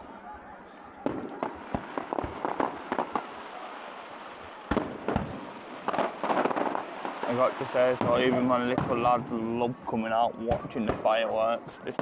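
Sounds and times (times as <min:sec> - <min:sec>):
firework booms: 0:01.0 - 0:09.4, 0:10.5 - 0:11.3
fireworks bursting: 0:01.0 - 0:09.5.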